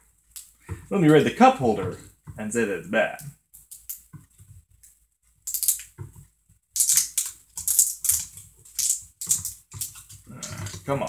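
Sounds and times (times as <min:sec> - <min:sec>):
plastic bottle cap scraping and clicking: 0:06.8 - 0:10.9.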